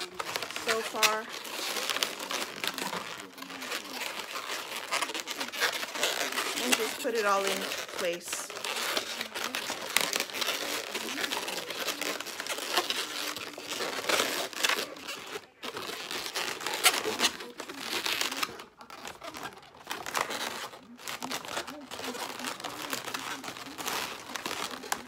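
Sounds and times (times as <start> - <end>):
balloons rubbing and squeaking: 0.0 - 25.0.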